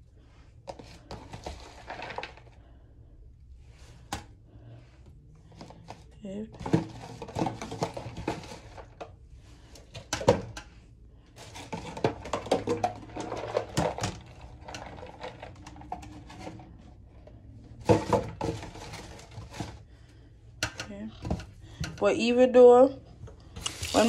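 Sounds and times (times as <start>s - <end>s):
metal and plastic clattering in sink: 0.7s - 2.5s, 5.6s - 9.1s, 9.8s - 10.6s, 11.4s - 17.0s, 17.7s - 19.8s, 23.6s - 24.0s.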